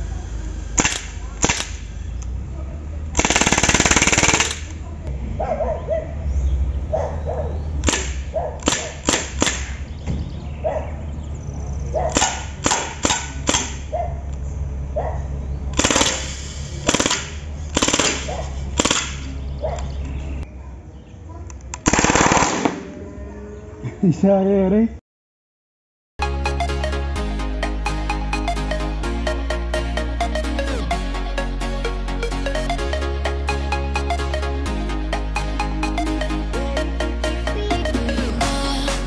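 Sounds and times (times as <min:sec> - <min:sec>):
bb rifle firing: 0:00.8 - 0:01.9, 0:03.2 - 0:04.8, 0:07.8 - 0:09.9, 0:12.1 - 0:13.9, 0:15.8 - 0:19.3, 0:21.8 - 0:22.9.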